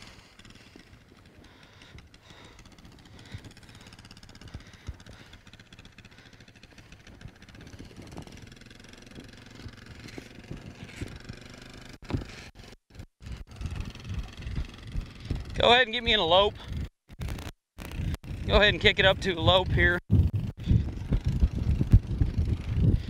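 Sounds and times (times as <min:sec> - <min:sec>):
atv engine running: 0:00.0 - 0:23.0
knocks and thuds: 0:12.0 - 0:12.5.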